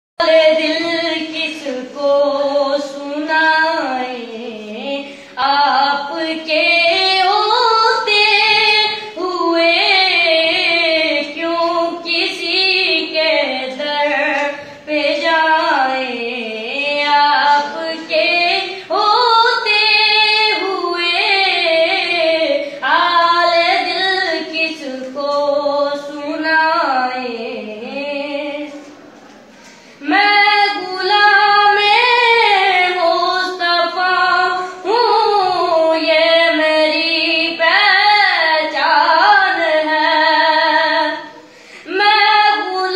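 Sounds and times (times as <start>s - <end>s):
boy singing unaccompanied: 0.2s - 28.9s, 30.0s - 42.9s.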